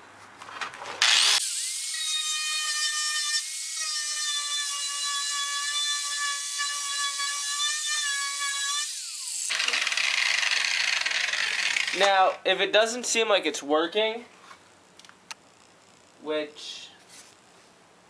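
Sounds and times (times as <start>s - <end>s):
angle grinder whining: 1.0s - 12.1s.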